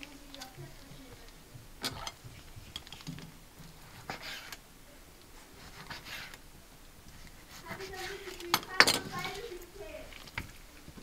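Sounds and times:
knife slicing meat: 3.8 - 4.6, 5.6 - 6.4.

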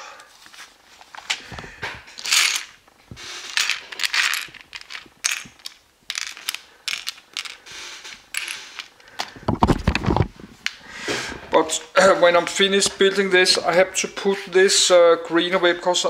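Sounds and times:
paper rustling: 0.3 - 2.6
plastic bricks clattering: 1.2 - 10.3.

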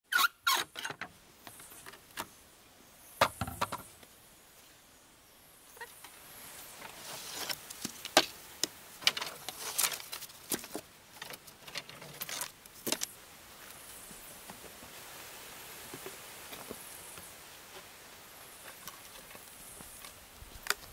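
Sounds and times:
heavy plank thump: 3.2 - 3.8
wooden planks knocking: 3.2 - 3.9.

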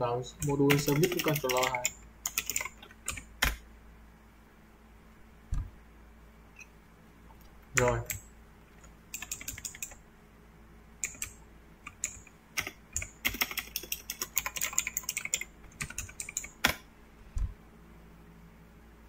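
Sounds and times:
keyboard typing: 0.4 - 3.6, 7.8 - 10.0, 11.0 - 16.8
dull low thump: 5.5 - 5.8, 17.3 - 17.6.

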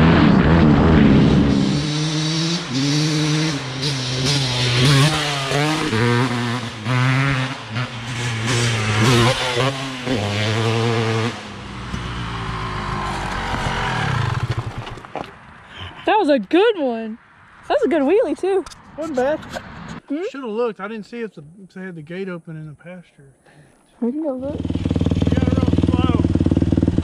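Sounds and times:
dirt bike engine accelerating: 0.0 - 15.6, 24.3 - 27.0.

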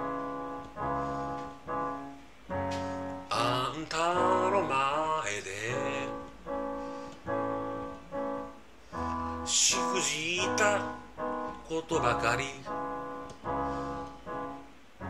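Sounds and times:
piano chords: 0.0 - 15.0
person singing ballad: 3.3 - 6.3, 9.5 - 11.0, 11.6 - 12.7.

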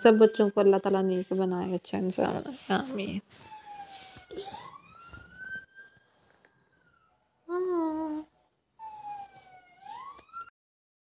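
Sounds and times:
siren wailing: 0.0 - 10.5
person humming: 7.5 - 8.3.

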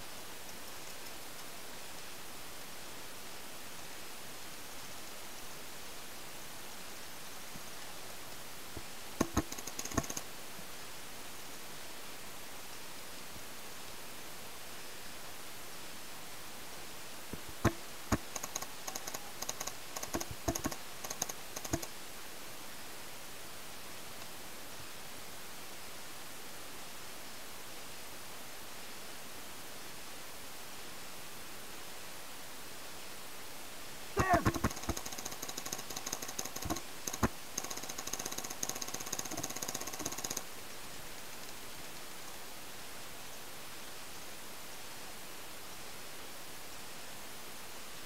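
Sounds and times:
steady hiss: 0.0 - 48.0
paintball markers popping: 9.2 - 10.2, 17.4 - 21.9, 34.2 - 40.4.

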